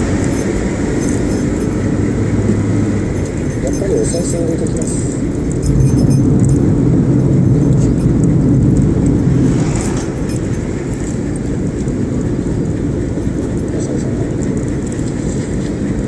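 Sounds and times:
truck passing whoosh: 0:00.0 - 0:03.6, 0:04.9 - 0:13.6
car road and engine drone: 0:00.0 - 0:16.0.

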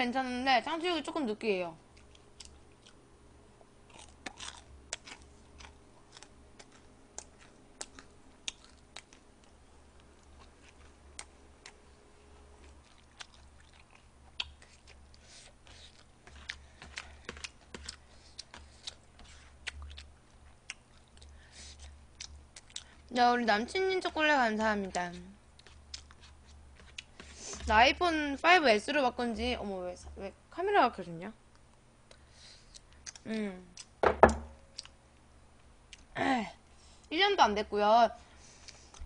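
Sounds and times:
chewing: 0:01.9 - 0:03.0, 0:03.6 - 0:11.9, 0:12.6 - 0:23.1, 0:24.9 - 0:27.7, 0:31.5 - 0:34.0.

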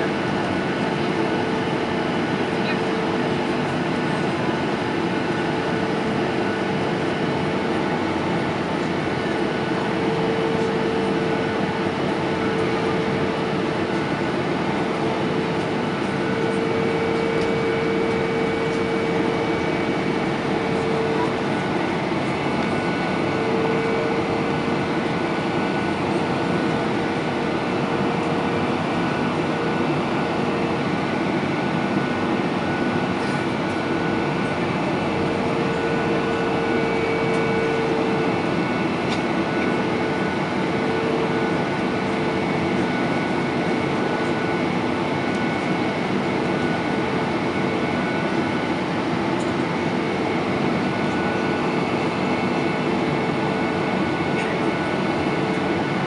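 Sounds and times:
jet engines humming: 0:00.0 - 0:56.0.

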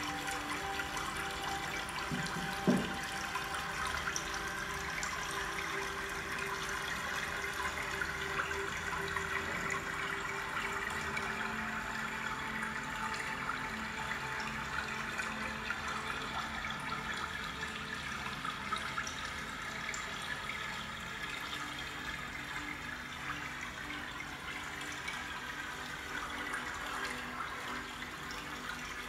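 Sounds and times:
water trickling: 0:00.0 - 0:29.0
low thump: 0:02.1 - 0:03.0.

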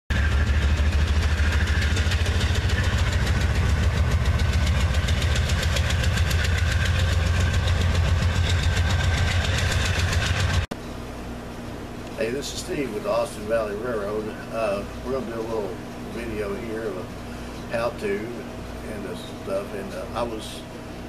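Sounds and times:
locomotive engine rumble: 0:00.1 - 0:10.7.

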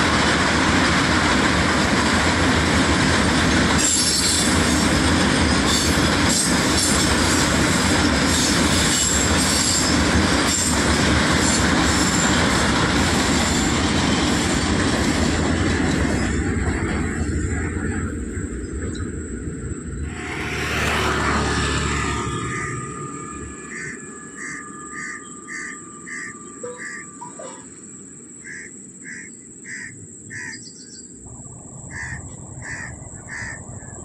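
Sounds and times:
steel wheels rumbling on rail: 0:00.0 - 0:28.1
metallic wheel screech: 0:20.0 - 0:27.6.

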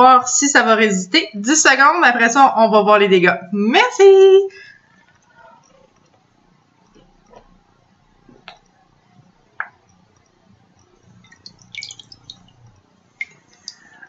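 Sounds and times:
water dripping in metal bowl: 0:09.6 - 0:14.0
water splashing: 0:11.1 - 0:14.0.

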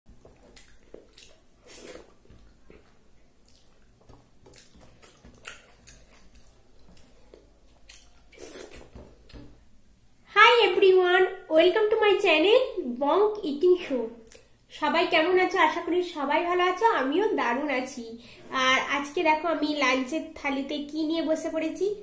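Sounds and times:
chewing: 0:00.1 - 0:09.6
fingers squishing food: 0:00.1 - 0:09.6.

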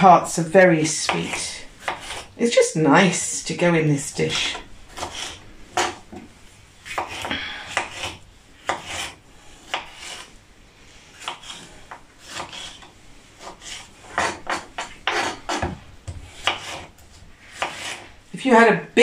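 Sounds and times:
knife slicing on wooden board: 0:06.8 - 0:10.3, 0:11.2 - 0:16.9, 0:17.5 - 0:18.0.

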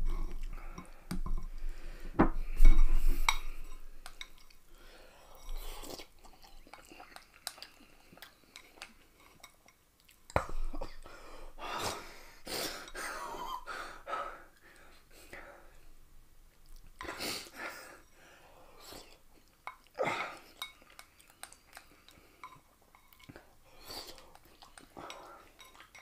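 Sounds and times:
person chewing noodles: 0:05.3 - 0:11.1, 0:18.8 - 0:26.0.

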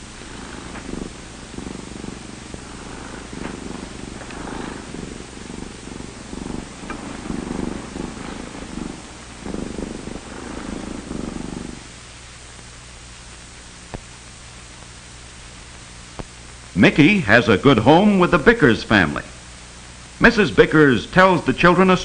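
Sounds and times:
cat purring: 0:00.0 - 0:12.6.

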